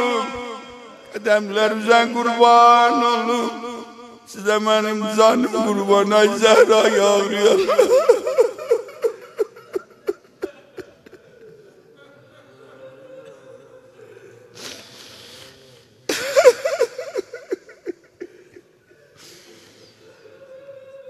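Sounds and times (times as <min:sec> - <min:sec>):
men weeping aloud: 0:05.2 - 0:11.6, 0:16.1 - 0:19.0
sharp hissing breath: 0:14.6 - 0:15.9, 0:19.2 - 0:20.0.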